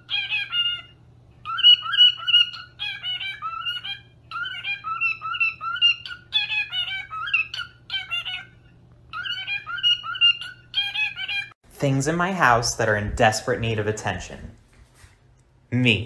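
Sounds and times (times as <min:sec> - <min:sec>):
cockatiel whistling a warbling song: 0:00.0 - 0:11.6.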